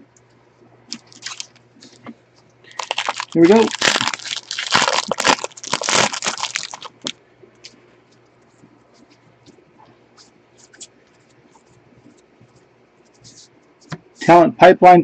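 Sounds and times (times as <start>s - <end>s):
wrapper crinkling as torn open: 0.9s - 1.6s, 2.7s - 7.1s.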